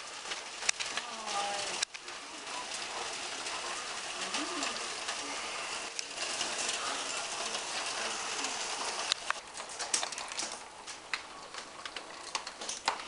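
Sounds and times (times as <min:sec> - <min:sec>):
heavy rain hissing: 0:00.0 - 0:09.4
hailstones ticking: 0:00.0 - 0:13.0.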